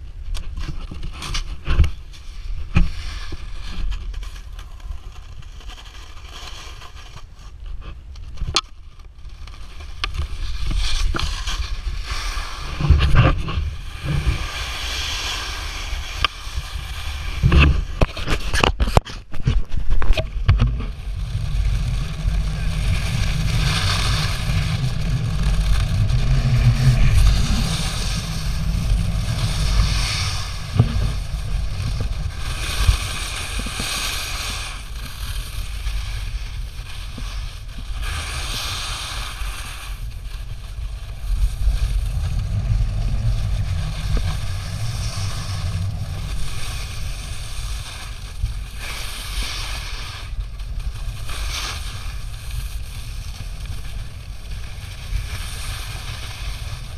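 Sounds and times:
snowboard carving on snow: 0:00.0 - 0:08.3, 0:09.2 - 0:56.9
wind buffeting microphone: 0:19.4 - 0:35.1, 0:40.0 - 0:56.9.

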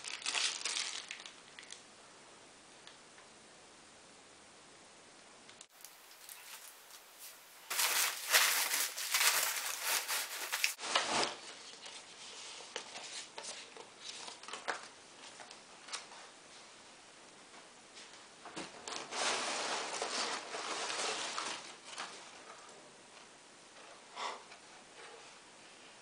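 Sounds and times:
paper packing crinkling: 0:00.0 - 0:01.8, 0:05.7 - 0:11.9, 0:18.9 - 0:22.2.

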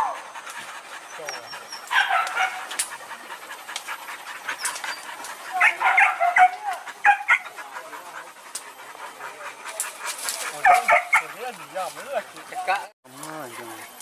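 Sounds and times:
dogs yelping and whining: 0:00.0 - 0:12.9.

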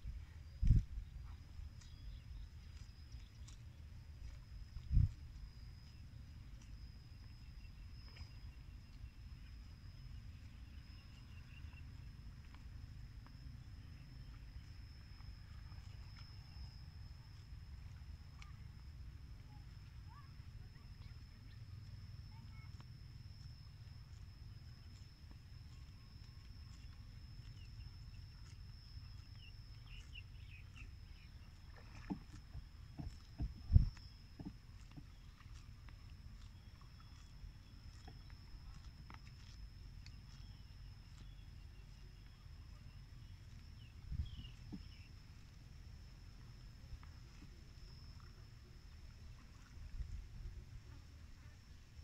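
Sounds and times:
small bird chirping: 0:19.4 - 0:45.2.

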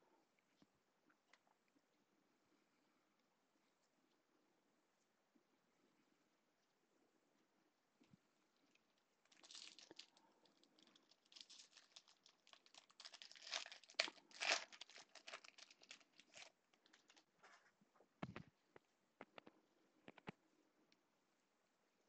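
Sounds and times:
foil wrapper tearing and crinkling: 0:09.3 - 0:17.2.

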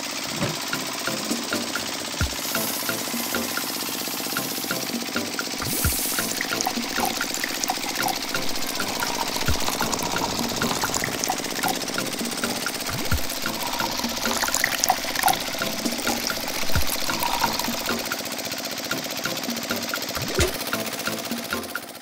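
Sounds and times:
steady mechanical hum: 0:00.0 - 0:21.6
liquid trickling into a bucket: 0:05.6 - 0:18.1.

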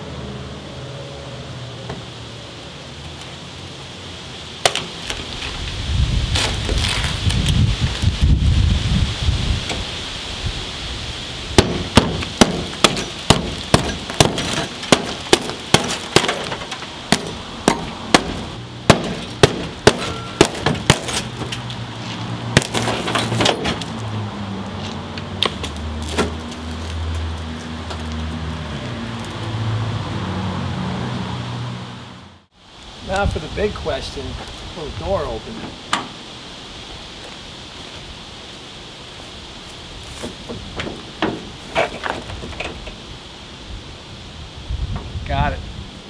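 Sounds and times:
hammer striking glass: 0:11.6 - 0:21.4.

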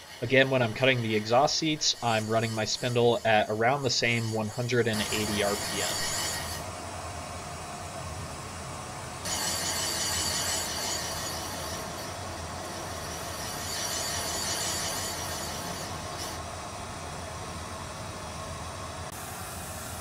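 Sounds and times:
valve seat cutter scraping: 0:00.0 - 0:06.7, 0:09.2 - 0:16.4.

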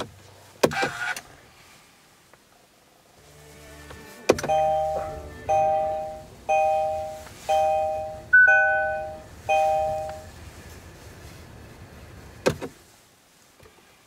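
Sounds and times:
high single beep: 0:04.4 - 0:10.3
two-note warning chime: 0:04.4 - 0:10.3.

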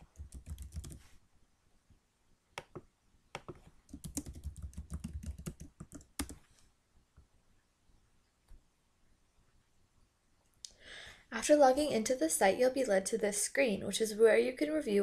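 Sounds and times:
typing on computer keyboard: 0:00.0 - 0:01.0, 0:03.4 - 0:06.4.

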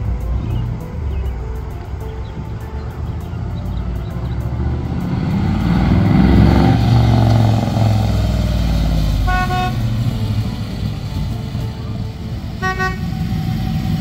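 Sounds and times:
car engine driving past: 0:00.0 - 0:14.0
car horn toot: 0:09.2 - 0:10.0, 0:12.6 - 0:13.3.

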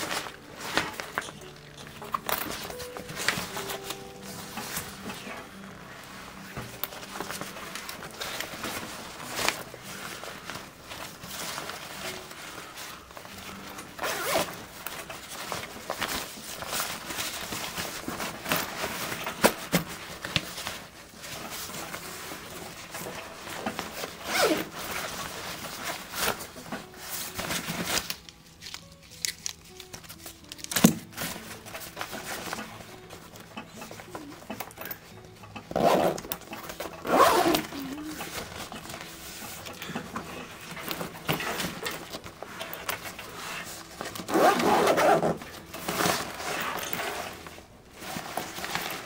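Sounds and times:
background music: 0:00.0 - 0:49.0
zippers pulled open and shut: 0:13.6 - 0:20.0, 0:22.7 - 0:26.9, 0:35.6 - 0:39.1, 0:40.1 - 0:49.0.

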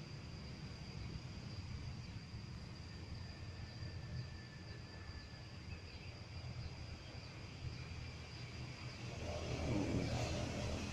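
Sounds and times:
insect drone: 0:00.0 - 0:10.9
low rumble: 0:08.9 - 0:10.9.

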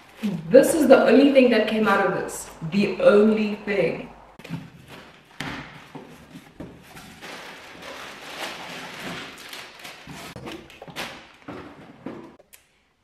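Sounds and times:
cardboard rustling and crinkling: 0:04.4 - 0:12.4.

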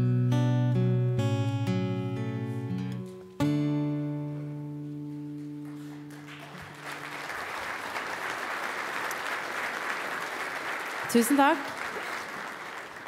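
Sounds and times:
acoustic guitar chord ringing: 0:00.0 - 0:07.1
audience applause: 0:05.4 - 0:13.0.

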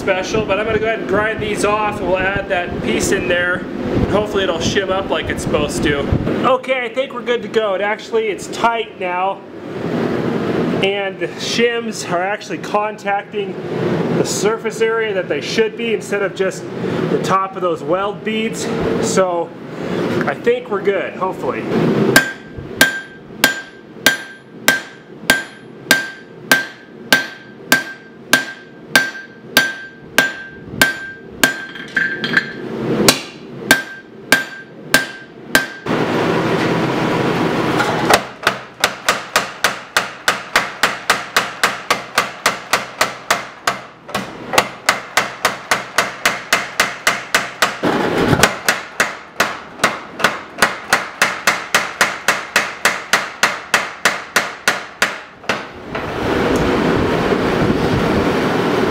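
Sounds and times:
steady rushing noise: 0:00.0 - 0:07.3, 0:18.4 - 0:26.2, 0:30.1 - 0:38.1, 0:47.6 - 0:48.7, 0:55.5 - 0:58.9
power hammer pounding: 0:22.1 - 0:32.5, 0:33.1 - 0:36.0, 0:38.1 - 0:55.8
hammer ringing on an anvil: 0:22.2 - 0:35.8.

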